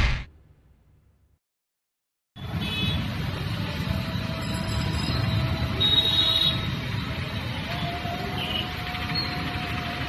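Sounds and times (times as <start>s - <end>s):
traffic rumble on wet street: 2.4s - 10.0s.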